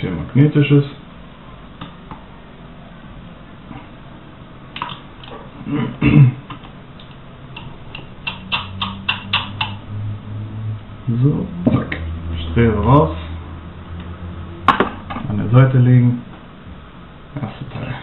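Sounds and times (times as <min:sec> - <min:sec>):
hand tool clicks and taps: 0:06.5 - 0:09.8.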